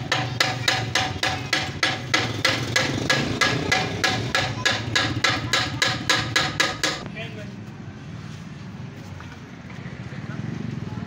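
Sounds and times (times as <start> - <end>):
hammer striking metal: 0.0 - 7.1.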